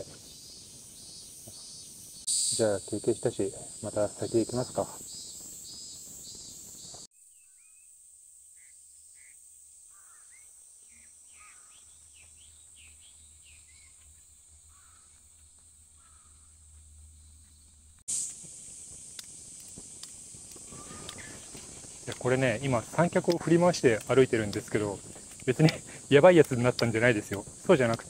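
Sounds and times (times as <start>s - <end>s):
high insect chirring: 0.0s - 28.0s
short falling bird calls: 8.6s - 14.1s, 14.7s - 15.3s, 16.0s - 16.6s, 20.6s - 22.1s.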